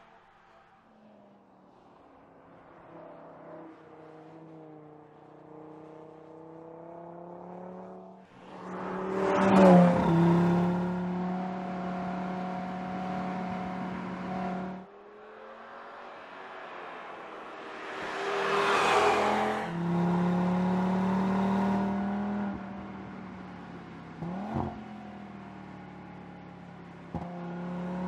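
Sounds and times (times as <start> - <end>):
car engine revving: 5.6 - 14.9, 17.4 - 22.6.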